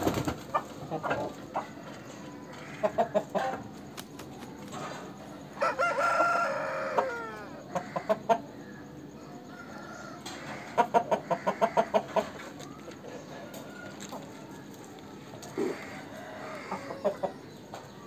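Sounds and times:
rooster clucking: 0:00.1 - 0:03.8, 0:05.6 - 0:08.7, 0:09.5 - 0:14.4, 0:15.4 - 0:17.7
rooster crowing: 0:05.6 - 0:08.1, 0:15.6 - 0:17.4.

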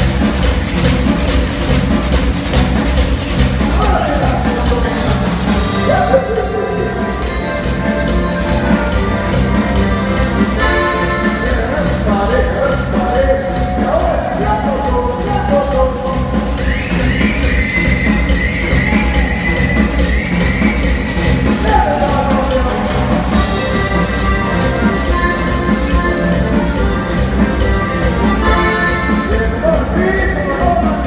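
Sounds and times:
accordion: 0:00.0 - 0:31.0
congas: 0:00.0 - 0:31.0
steady percussion beat: 0:00.0 - 0:31.0
guitar melody: 0:04.6 - 0:12.2, 0:20.7 - 0:30.5.

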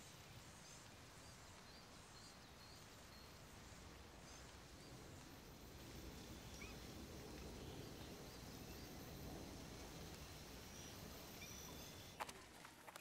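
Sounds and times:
faint bird chirps: 0:00.0 - 0:12.2
steady low rumble: 0:03.4 - 0:12.2.

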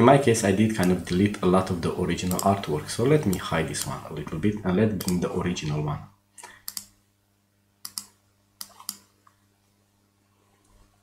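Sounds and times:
faint electrical hum: 0:00.0 - 0:11.0
mouse and keyboard clicks: 0:02.3 - 0:02.6, 0:06.6 - 0:06.9, 0:07.8 - 0:09.1.

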